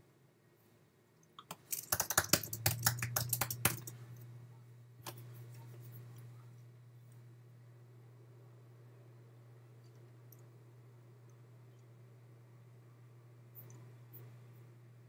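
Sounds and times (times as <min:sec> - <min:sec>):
steady low hum: 0:00.0 - 0:15.0
typing on computer keyboard: 0:01.4 - 0:04.0.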